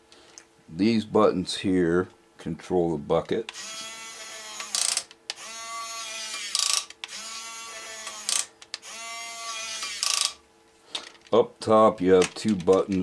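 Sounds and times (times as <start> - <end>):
toy excavator motor whining: 3.5 - 10.4.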